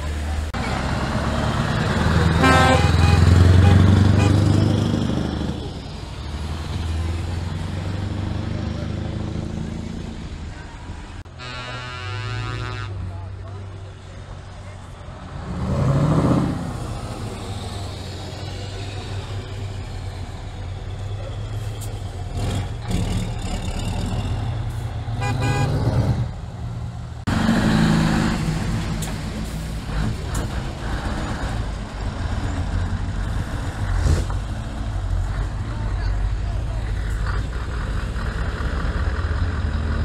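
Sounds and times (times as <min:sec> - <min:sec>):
diesel truck engines passing: 0:00.0 - 0:40.0
truck horn: 0:02.2 - 0:04.7, 0:11.3 - 0:13.1, 0:25.1 - 0:26.2.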